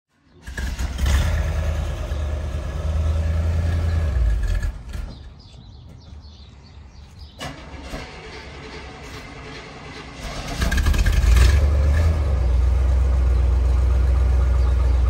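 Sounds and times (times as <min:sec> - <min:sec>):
vehicle engine running: 0:07.4 - 0:15.0.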